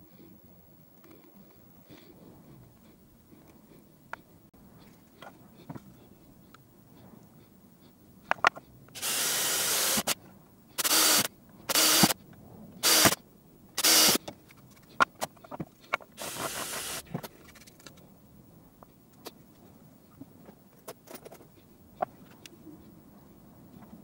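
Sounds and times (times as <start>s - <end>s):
cordless drill boring through plastic: 9.0s - 10.2s, 10.8s - 12.2s, 12.8s - 13.2s, 13.8s - 14.2s, 16.2s - 17.0s.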